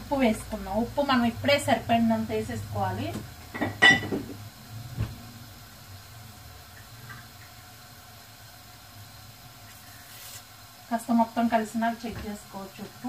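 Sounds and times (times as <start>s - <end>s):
gas burner hum and hiss: 0.0s - 13.0s.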